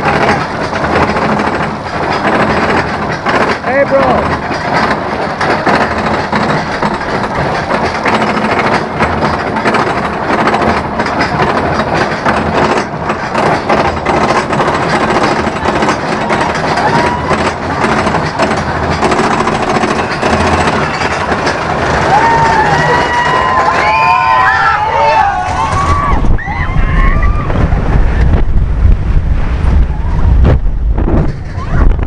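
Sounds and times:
roller coaster lift chain clatter: 0:00.0 - 0:32.0
riders screaming: 0:16.7 - 0:17.5, 0:22.0 - 0:27.6.

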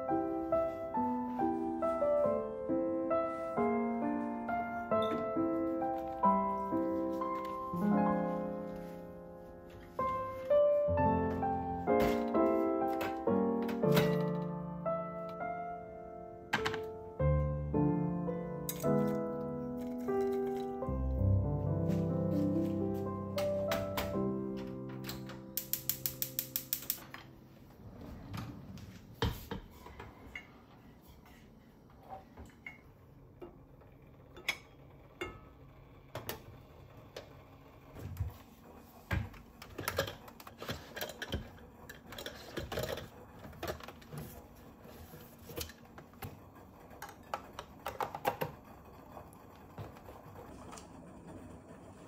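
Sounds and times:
mixer beaters being fitted: 0:03.2 - 0:15.8, 0:16.4 - 0:52.0
kitchen utensils clattering: 0:11.8 - 0:14.5, 0:18.7 - 0:21.0, 0:39.2 - 0:44.4
drawer pulled open: 0:27.7 - 0:29.5.

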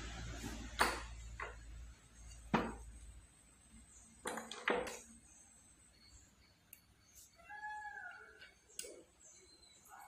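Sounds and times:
metal parts knocking on workbench: 0:02.5 - 0:02.9, 0:04.2 - 0:05.0.

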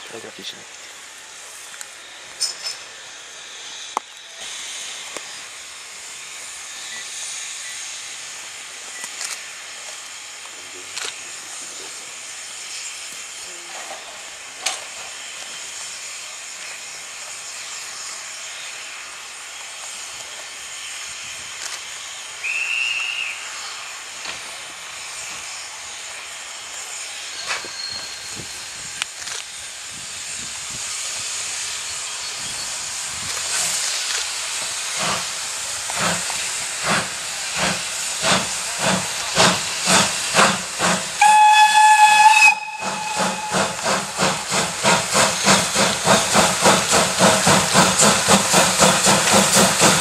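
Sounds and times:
steam locomotive hissing: 0:00.0 - 0:50.0
high steam whistle: 0:22.3 - 0:23.9, 0:36.8 - 0:48.2.

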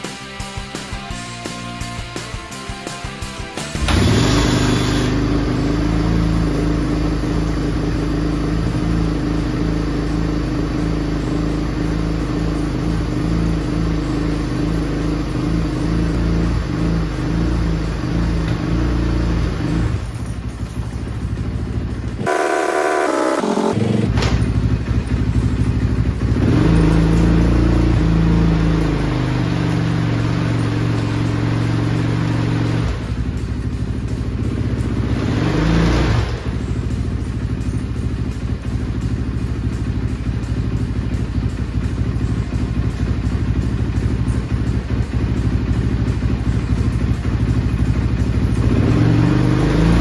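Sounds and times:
dirt bike engine revving: 0:03.8 - 0:20.0, 0:22.2 - 0:24.7, 0:26.2 - 0:33.2, 0:34.5 - 0:36.6, 0:48.5 - 0:50.0.

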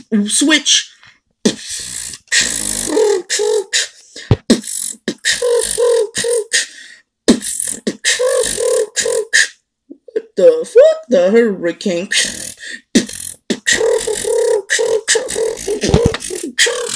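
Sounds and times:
man beatboxing: 0:01.4 - 0:06.7, 0:07.3 - 0:09.6, 0:12.1 - 0:16.9.

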